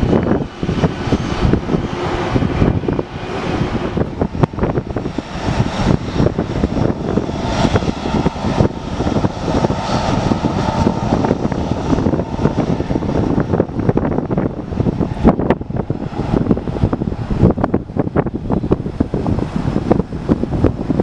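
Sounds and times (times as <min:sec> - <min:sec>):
jet engines running: 0:00.0 - 0:21.0
wind buffeting microphone: 0:00.0 - 0:21.0.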